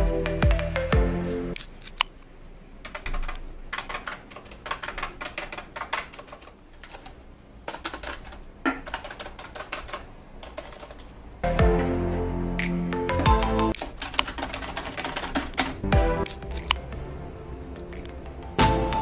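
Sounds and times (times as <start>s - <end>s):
music: 0.0s - 1.6s, 11.4s - 13.8s, 15.8s - 19.0s.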